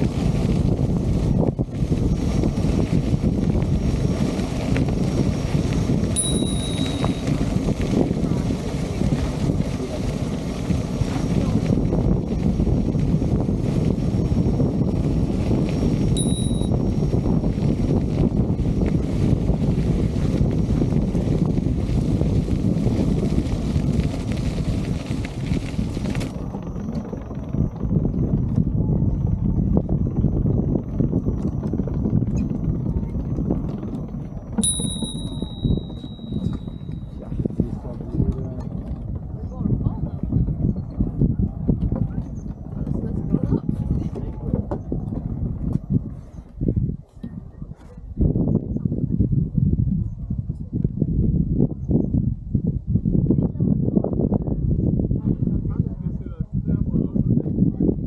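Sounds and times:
wheel rumbling on gravel: 0.0 - 46.7
wind buffeting microphone: 0.0 - 58.0
tyres on gravel: 1.8 - 12.5, 15.0 - 26.6
bell ringing: 6.2 - 7.3, 16.2 - 16.8, 34.6 - 36.9.

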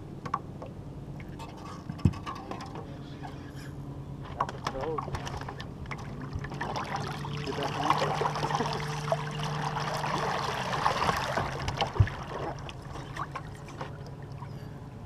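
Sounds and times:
steady low hum: 0.0 - 15.0
water splashing against boat: 4.1 - 14.9.

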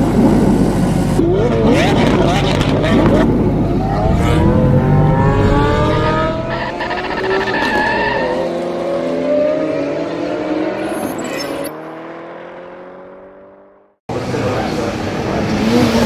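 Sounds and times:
race car engine accelerating: 1.2 - 10.8.

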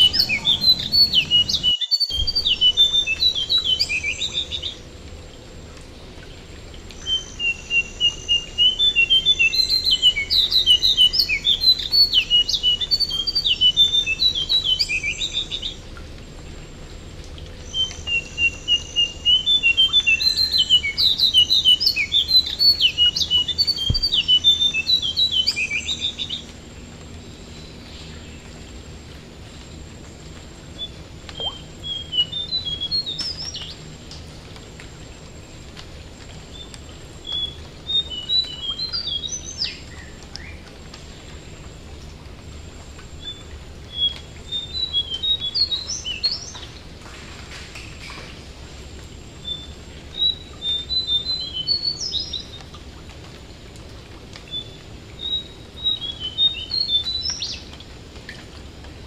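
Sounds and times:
songbird singing and chattering: 0.0 - 4.8, 7.0 - 15.8, 17.6 - 26.5
faint rain hiss: 0.0 - 59.0.

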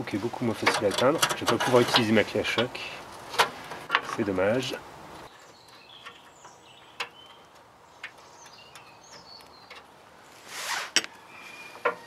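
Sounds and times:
birds chirping faintly: 2.0 - 12.0
rustling scrape: 10.3 - 12.0.

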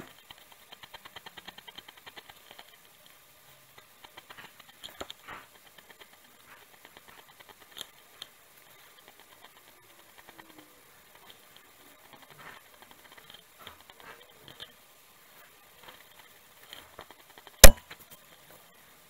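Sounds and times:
drawing tool scratching paper: 0.0 - 14.4.

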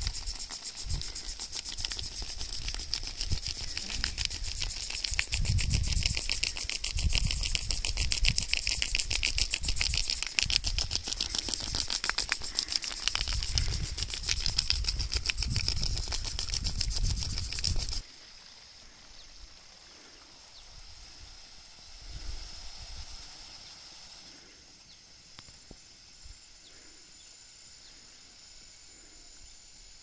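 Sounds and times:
impact sprinklers ticking: 0.0 - 18.0
wind rumbling on microphone: 0.0 - 18.0, 20.6 - 23.4.

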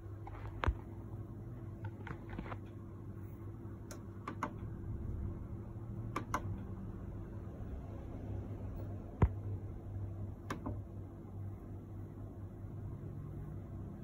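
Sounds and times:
steady low hum: 0.0 - 14.0
mixer buttons clicking: 3.9 - 4.7, 6.1 - 6.6.

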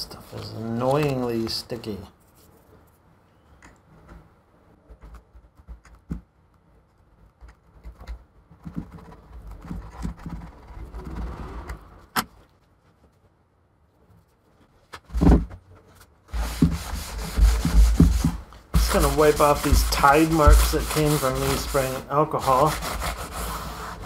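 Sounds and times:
paper towel rustling: 0.0 - 2.8, 12.6 - 24.0
fingers rubbing adhesive residue: 16.3 - 24.0
towel rubbing on metal: 16.3 - 24.0.

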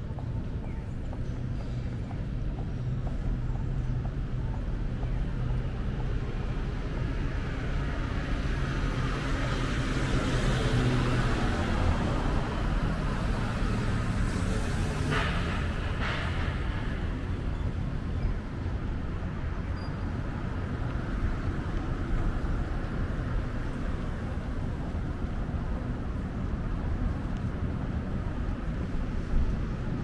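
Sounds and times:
vehicle engines humming: 0.0 - 30.0
passing vehicle tyre noise: 6.0 - 30.0.

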